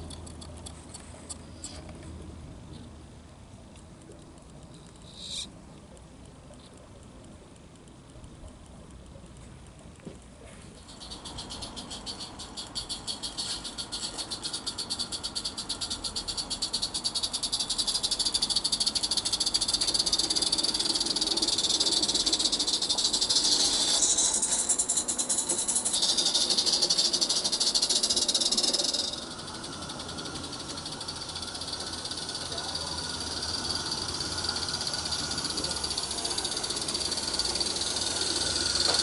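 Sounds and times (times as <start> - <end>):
steam locomotive chuffing: 10.8 - 39.0.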